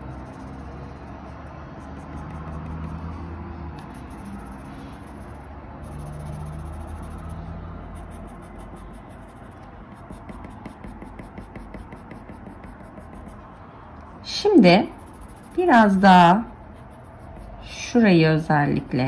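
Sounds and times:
pencil scratching on paper: 0.0s - 13.6s, 14.4s - 18.0s.

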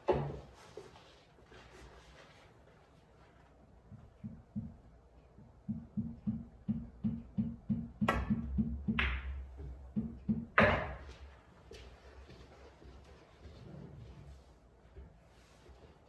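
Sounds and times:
pool cue striking ball: 6.7s - 11.2s.

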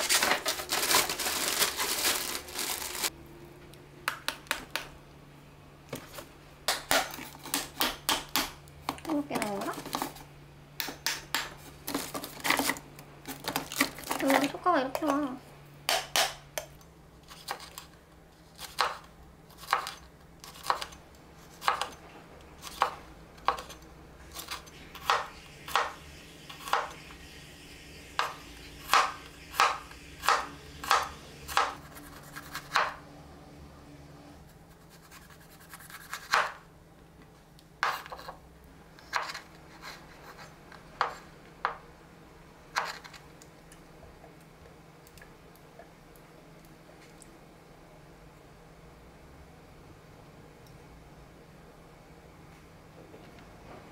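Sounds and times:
knife chopping on wooden board: 15.9s - 16.4s, 28.9s - 31.8s, 36.2s - 36.6s.

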